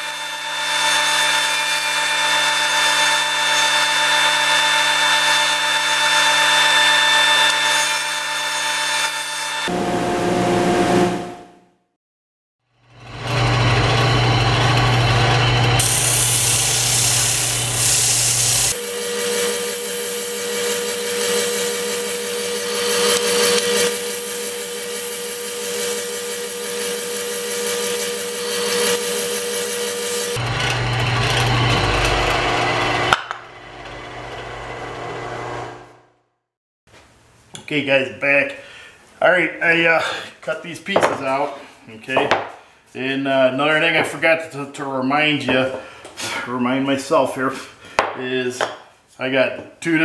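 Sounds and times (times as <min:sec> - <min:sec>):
spindle sander sanding wood: 0:13.6 - 0:33.1.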